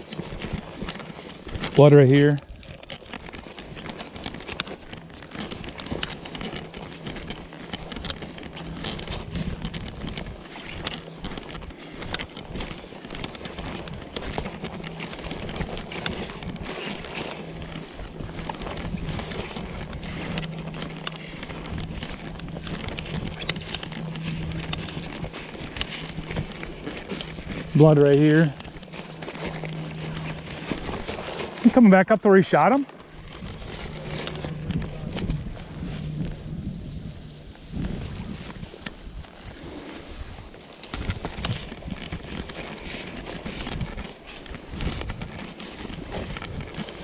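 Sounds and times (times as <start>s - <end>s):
dry stalks crackling and swishing: 0.0s - 47.0s
footsteps in grass: 0.0s - 47.0s
low steady hum: 0.3s - 40.3s
wind on microphone: 33.0s - 47.0s.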